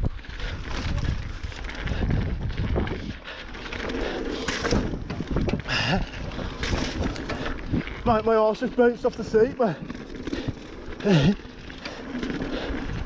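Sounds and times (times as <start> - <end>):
wind on microphone: 0.0 - 3.3
bike rattling and knocking: 0.0 - 13.0
bike tyres on dirt and rock: 0.0 - 13.0.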